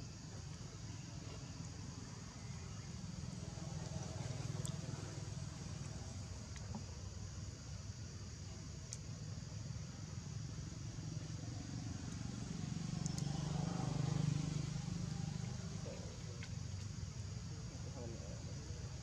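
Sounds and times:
passing motor vehicle engine hum: 0:10.8 - 0:18.0.

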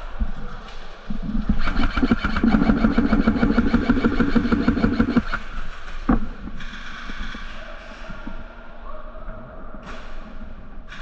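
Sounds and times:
motor and gearbox whine: 0:01.6 - 0:05.4
airsoft gun full-auto burst: 0:01.6 - 0:05.5.

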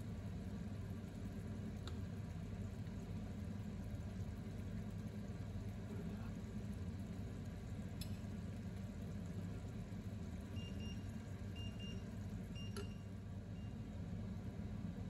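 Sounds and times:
low kitchen hum: 0:00.0 - 0:15.0.

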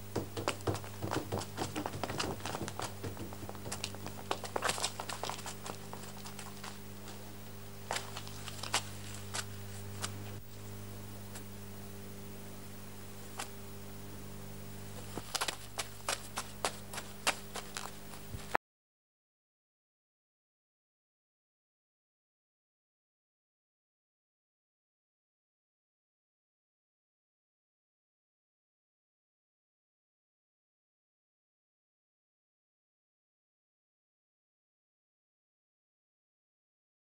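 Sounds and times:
low electrical hum: 0:00.0 - 0:18.6
dry leaves crackling underfoot: 0:00.6 - 0:10.4, 0:15.0 - 0:18.6.

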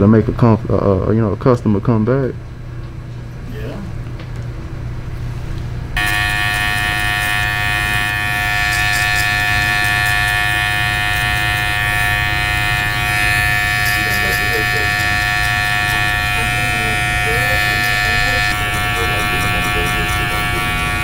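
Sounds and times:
electric hair clipper buzzing: 0:06.0 - 0:21.0.

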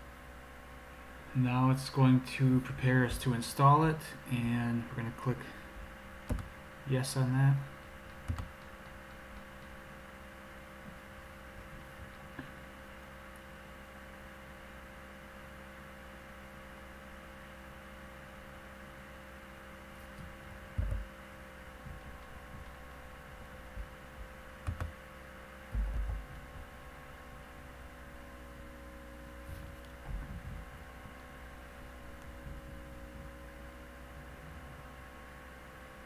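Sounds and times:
steady electrical hum: 0:00.0 - 0:36.0
dull low thumps: 0:20.2 - 0:24.3, 0:25.7 - 0:26.8, 0:29.5 - 0:31.1, 0:32.3 - 0:33.4.

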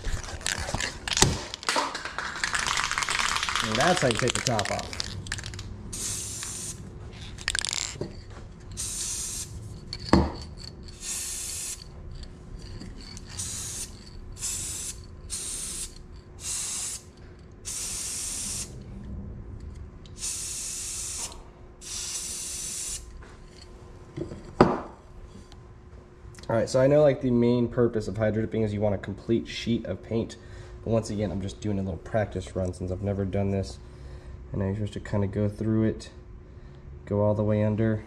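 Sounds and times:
spray paint can hissing: 0:02.4 - 0:08.0, 0:08.8 - 0:09.6, 0:10.9 - 0:11.8, 0:13.2 - 0:18.8, 0:20.2 - 0:23.1.

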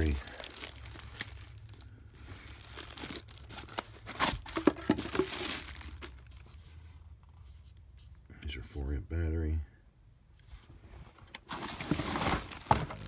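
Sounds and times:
plastic bag crinkling and tearing: 0:00.0 - 0:06.6, 0:11.5 - 0:13.0.

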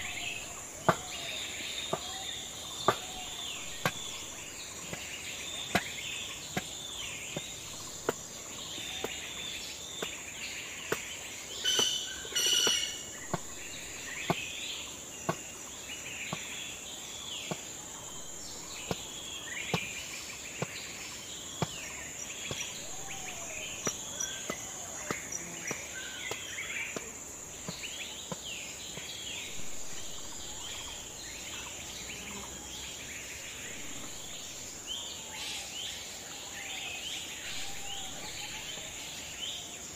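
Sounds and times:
cleaver chopping on wooden block: 0:00.0 - 0:01.3, 0:02.8 - 0:08.2, 0:10.9 - 0:14.5
birds chirping: 0:00.0 - 0:39.9
high insect hum: 0:00.0 - 0:39.9
loud bird calls: 0:00.0 - 0:39.9.

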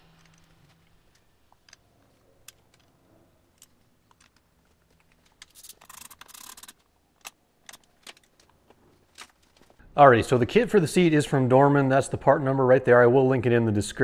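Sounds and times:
faint clicks and knocks of parts: 0:00.0 - 0:09.8.

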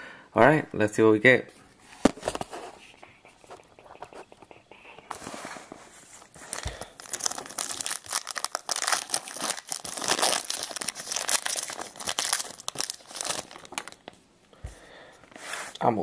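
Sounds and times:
foil wrapper tearing and crinkling: 0:06.4 - 0:14.1.

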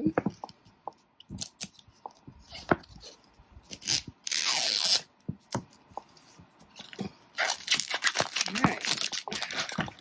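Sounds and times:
plastic wrapping ripping: 0:03.7 - 0:05.1, 0:07.3 - 0:10.0
plastic crinkling: 0:06.7 - 0:10.0.

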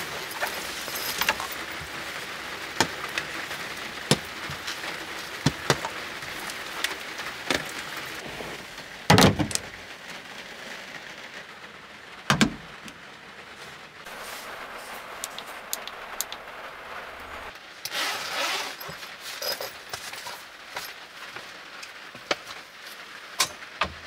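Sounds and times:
light rain on a vehicle roof: 0:00.0 - 0:24.0
drips and clicks: 0:15.2 - 0:16.5.

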